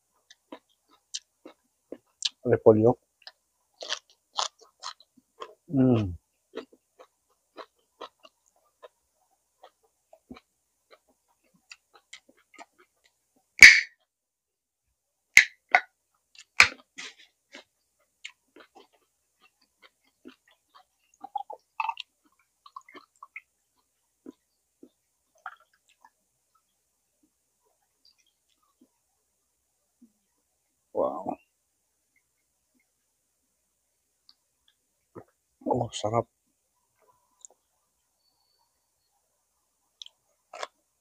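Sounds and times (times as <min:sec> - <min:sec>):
wet chewing and mouth clicks: 0:00.2 - 0:02.4, 0:03.2 - 0:05.6, 0:06.5 - 0:13.9, 0:15.4 - 0:26.7, 0:39.9 - 0:40.8.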